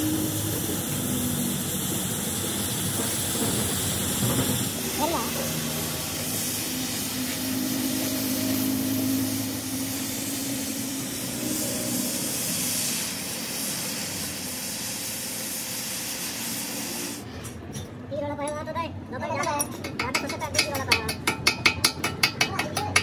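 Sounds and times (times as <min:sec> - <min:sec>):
cutting torch hissing: 0:00.0 - 0:17.4.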